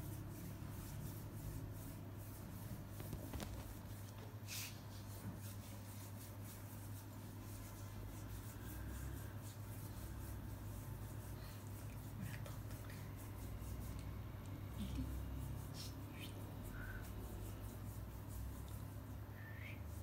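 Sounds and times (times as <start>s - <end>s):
kitten paws scratching bedspread: 0.0s - 20.0s
steady low hum: 0.0s - 20.0s.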